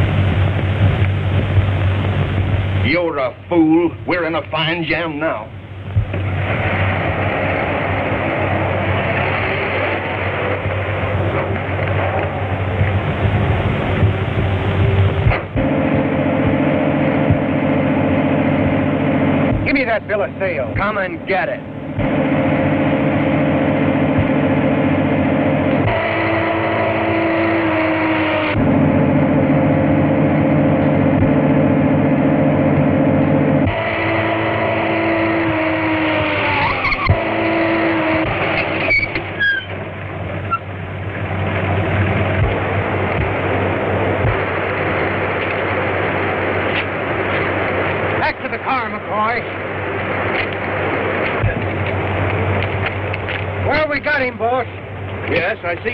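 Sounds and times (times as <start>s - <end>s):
car engine running at speed: 0.0s - 3.2s, 5.5s - 55.9s
steady rushing noise: 0.0s - 55.9s
short high squeal: 36.4s - 37.7s, 38.6s - 39.8s.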